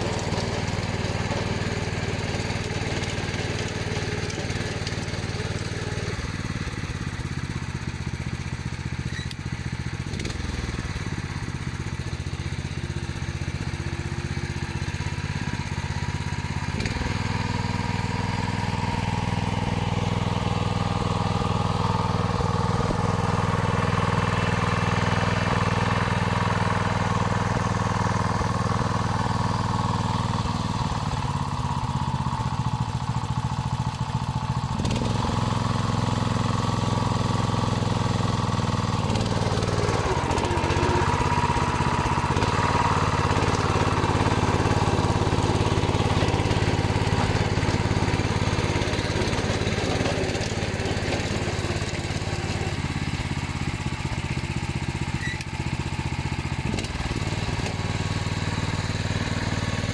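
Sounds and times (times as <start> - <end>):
rotary tiller churning soil: 0.0 - 59.9
tractor engine running: 0.0 - 59.9.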